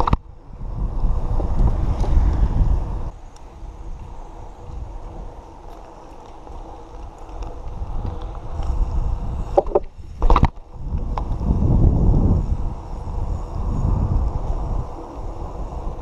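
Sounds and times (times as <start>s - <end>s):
wind rumbling on microphone: 0.0s - 16.0s.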